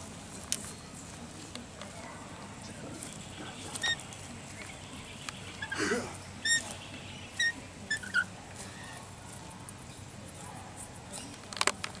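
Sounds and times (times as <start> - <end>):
bird squeaky chirps: 3.7 - 5.8, 6.4 - 9.0.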